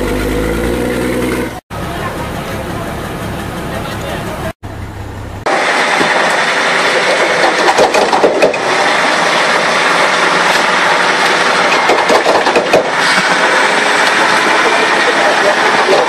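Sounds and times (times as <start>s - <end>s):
heavy machine engine running: 0.0s - 16.0s.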